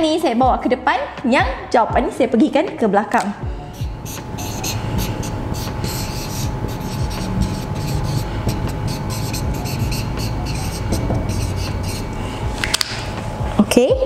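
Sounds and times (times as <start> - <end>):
faint steady hum: 0.0 - 14.0
marker writing on whiteboard: 3.7 - 12.1.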